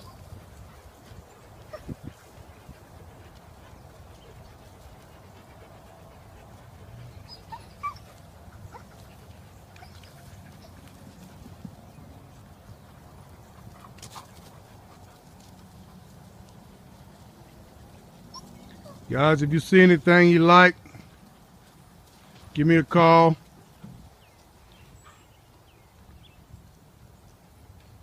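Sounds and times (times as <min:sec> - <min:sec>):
puppies crying: 0:01.5 - 0:02.1, 0:05.2 - 0:11.1, 0:18.2 - 0:19.1.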